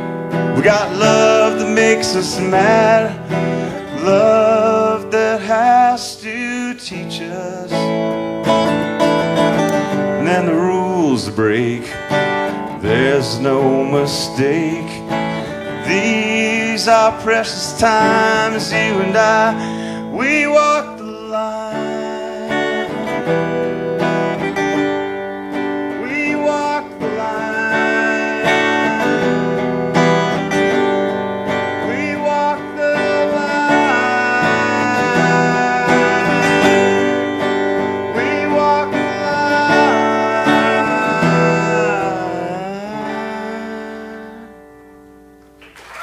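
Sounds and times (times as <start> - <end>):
acoustic guitar playing: 0.0 - 46.0.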